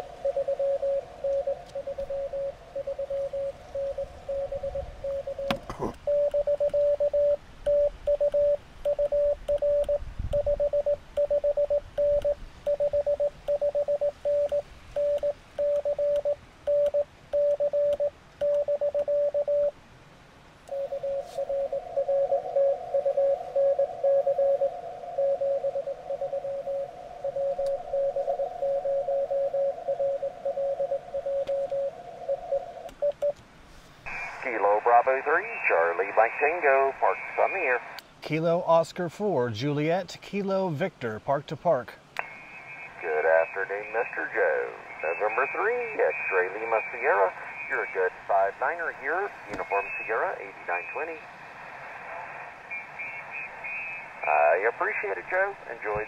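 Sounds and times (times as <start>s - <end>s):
radio band noise hiss: 0.0s - 6.2s, 20.7s - 32.9s, 33.6s - 56.0s
morse code sidetone: 0.0s - 19.7s, 20.7s - 33.3s, 42.4s - 48.1s
morse code through receiver: 0.0s - 19.7s, 20.7s - 33.4s, 42.2s - 51.1s.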